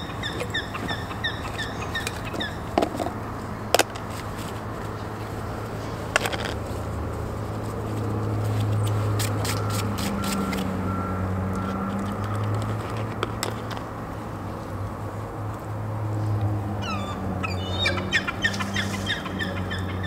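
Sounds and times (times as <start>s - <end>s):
bird chirping: 0.0s - 2.8s, 16.8s - 20.0s
plastic containers clicking: 2.0s - 4.9s, 6.1s - 6.7s, 11.5s - 13.9s.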